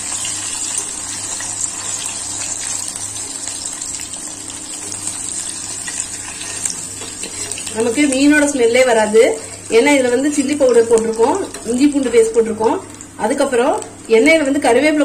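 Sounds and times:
hot oil sizzling and crackling: 0.0s - 15.0s.

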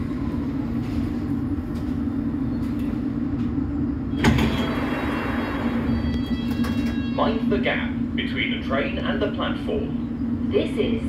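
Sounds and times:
train equipment humming: 0.0s - 11.0s
sliding doors opening: 4.1s - 7.3s.

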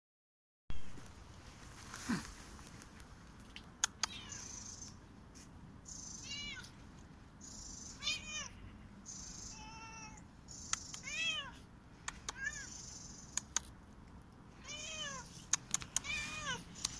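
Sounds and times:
sharp clicks: 2.6s - 4.5s, 13.3s - 14.4s, 15.5s - 16.1s
cat meowing: 6.2s - 6.7s, 8.0s - 8.6s, 9.5s - 10.2s, 11.0s - 11.6s, 12.3s - 12.7s, 14.6s - 15.3s, 15.9s - 16.7s.

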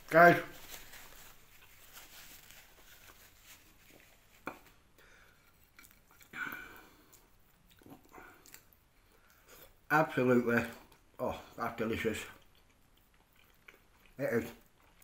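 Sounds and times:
mouth and handling noises: 0.0s - 15.0s
man chewing: 2.5s - 9.9s, 10.7s - 11.2s, 12.2s - 15.0s.

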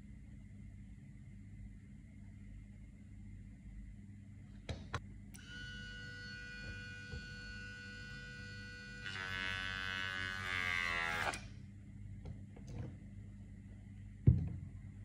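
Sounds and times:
grinder motor whining: 5.4s - 11.4s.

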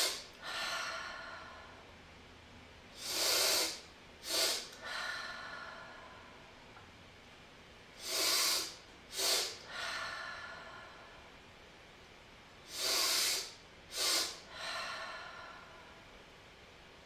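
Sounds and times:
sniffing inhales through nose: 3.0s - 4.8s, 8.0s - 9.7s, 12.7s - 14.5s
exhaling through mouth: 3.0s - 5.0s, 8.0s - 9.8s, 12.7s - 14.5s.

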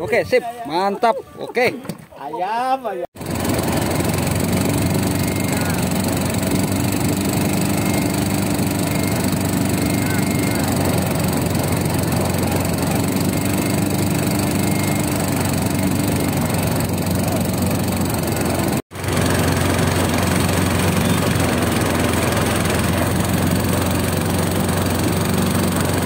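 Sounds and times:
boat engine running: 3.2s - 26.0s.

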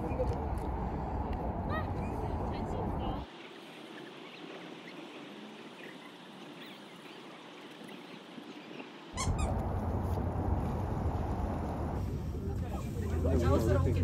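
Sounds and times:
birds chirping: 2.0s - 9.6s
loud low rumbling noise: 9.3s - 14.0s.

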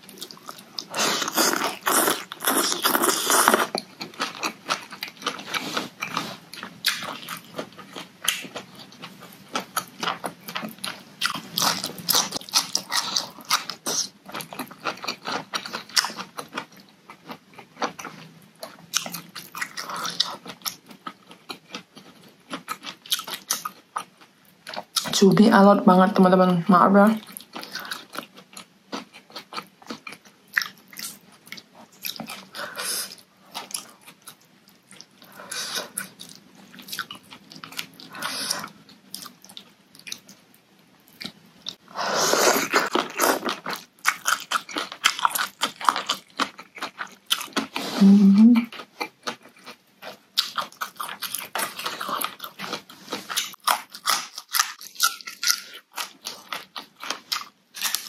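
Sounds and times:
crunching vegetables: 0.0s - 25.2s, 41.1s - 48.0s, 48.6s - 58.0s
wet chewing: 0.1s - 25.2s, 41.1s - 48.0s, 48.6s - 58.0s.

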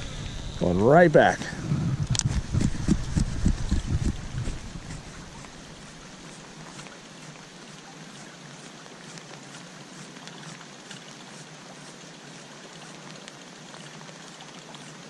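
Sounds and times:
rain falling on a pond: 4.6s - 15.0s.

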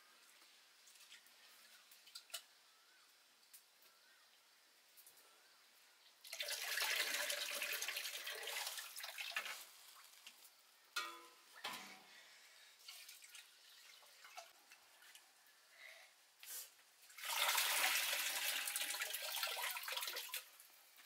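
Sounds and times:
water pouring into metal pot: 6.2s - 10.2s, 12.8s - 15.2s, 17.1s - 20.6s
metal vessels clanking together: 11.0s - 12.0s.

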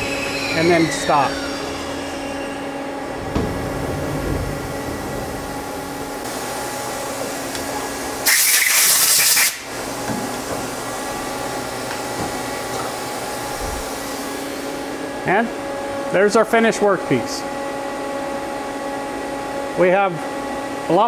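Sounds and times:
lathe machine hum: 0.0s - 8.3s, 9.6s - 16.7s
loud hiss: 8.2s - 9.7s.

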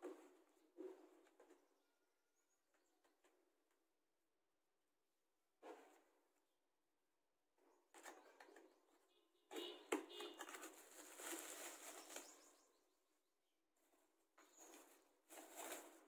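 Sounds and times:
bubble wrap rustling and crinkling: 10.3s - 12.6s.

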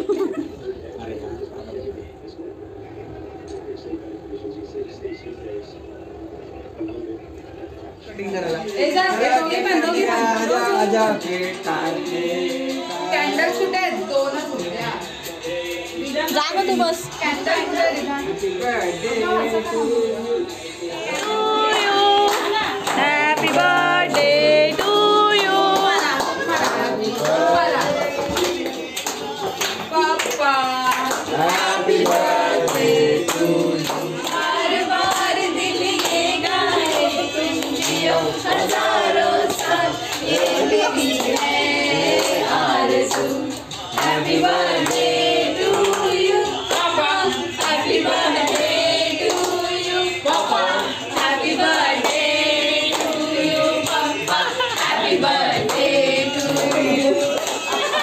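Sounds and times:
group of people singing: 8.7s - 58.0s
hand-clapping in time: 21.2s - 46.9s, 53.8s - 58.0s.

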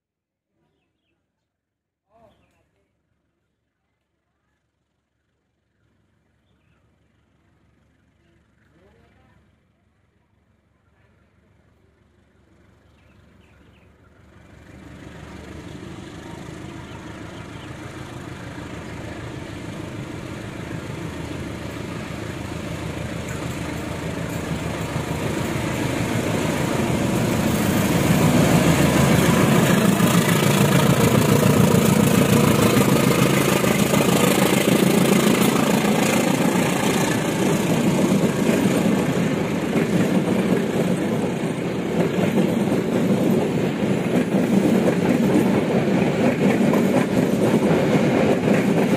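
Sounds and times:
diesel locomotive engine: 4.1s - 48.9s
train coaches rolling on rails: 11.2s - 48.9s.

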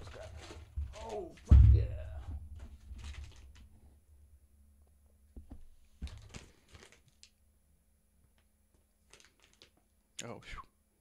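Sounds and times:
paper and plastic crinkling: 0.0s - 1.6s, 2.6s - 3.7s, 6.0s - 7.3s, 9.0s - 9.8s.

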